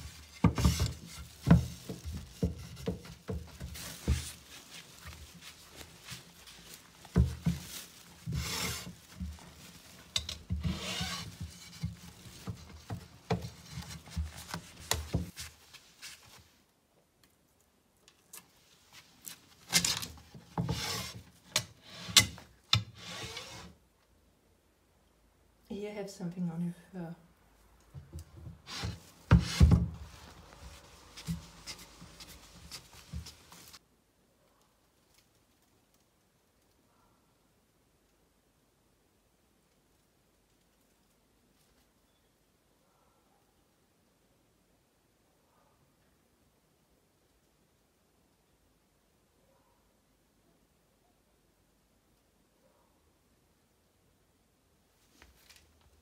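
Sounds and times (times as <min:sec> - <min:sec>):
phone scraping on wooden boards: 0:00.0 - 0:04.4, 0:08.2 - 0:09.0, 0:10.2 - 0:12.8, 0:19.7 - 0:23.8.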